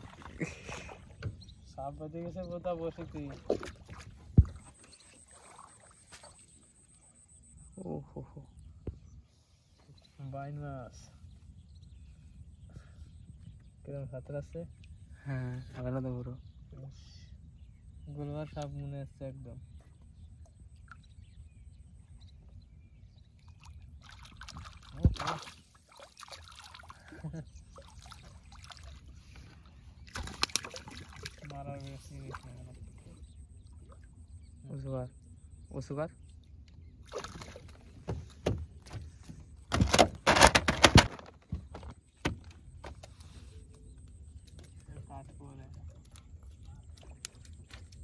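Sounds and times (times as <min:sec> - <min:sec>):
fish splashing at water surface: 0:24.0 - 0:29.1, 0:30.1 - 0:31.5, 0:37.1 - 0:38.2
eel thrashing: 0:30.0 - 0:31.4
knocks on wooden boat: 0:38.0 - 0:39.1, 0:39.7 - 0:43.0.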